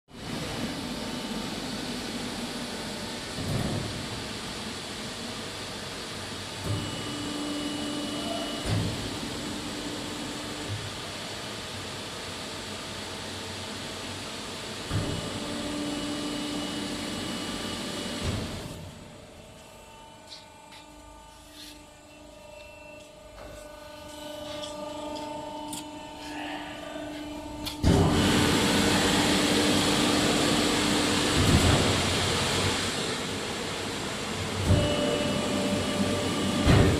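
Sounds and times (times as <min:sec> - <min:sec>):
press mechanical hum: 0:00.2 - 0:36.9
higher hum: 0:19.4 - 0:30.7.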